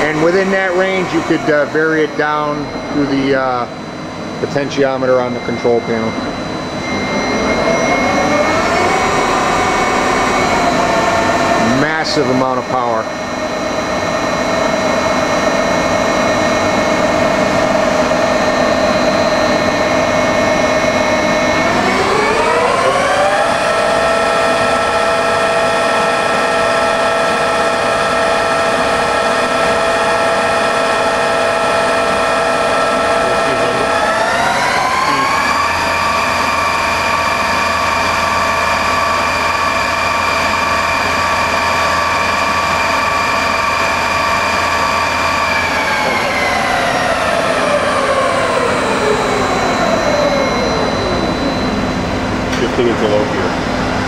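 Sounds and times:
milling machine spindle whine: 0.0 - 54.0.

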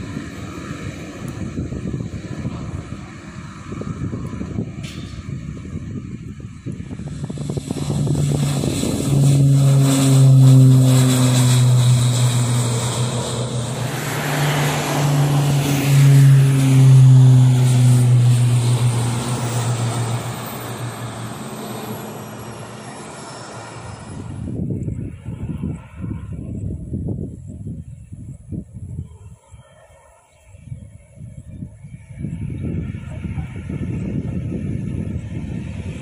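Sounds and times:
turboprop aircraft taking off: 0.0 - 36.0.

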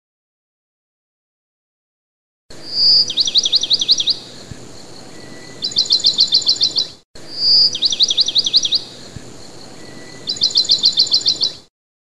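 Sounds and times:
background hiss: 2.5 - 11.7
songbird trilling: 2.6 - 11.7.

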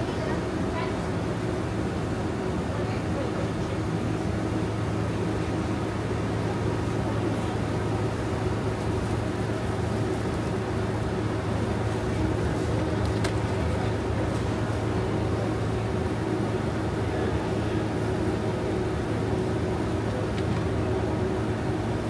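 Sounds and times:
store machinery drone: 0.0 - 22.0.

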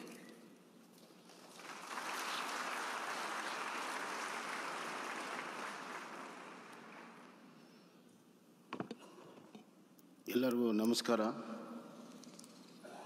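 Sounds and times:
large audience applauding: 1.3 - 7.5.

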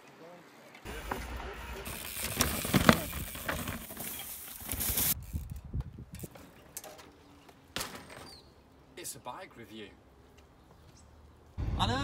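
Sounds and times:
bike tyres rumbling over rocks: 0.9 - 5.2
bike clicks and knocks: 1.9 - 8.4
wind noise: 4.6 - 6.4.

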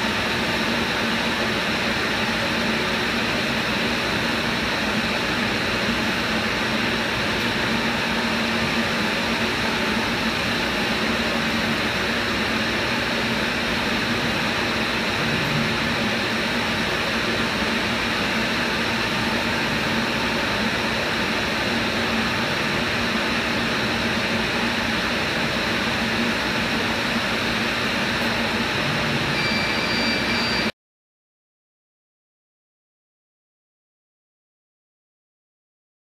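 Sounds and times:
low machine hum: 0.0 - 30.7
thin high tone: 29.2 - 30.7.

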